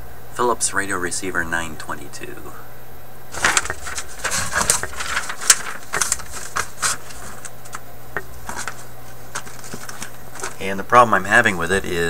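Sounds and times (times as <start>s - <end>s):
faint steady hum: 0.0s - 12.0s
paper rustling: 3.3s - 10.7s.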